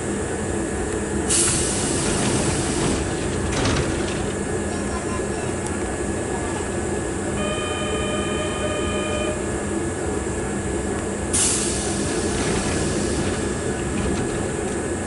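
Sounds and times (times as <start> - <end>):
electric train humming: 0.0 - 15.0
steady electronic tone: 7.4 - 9.5
compressed air hiss: 11.4 - 12.3.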